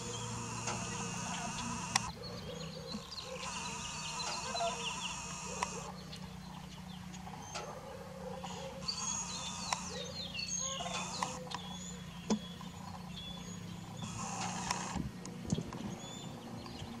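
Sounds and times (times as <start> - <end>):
sharp clicks: 0.0 - 2.2, 2.9 - 5.9, 8.8 - 10.1, 10.8 - 11.6, 14.0 - 15.8
birds chirping: 0.0 - 17.0.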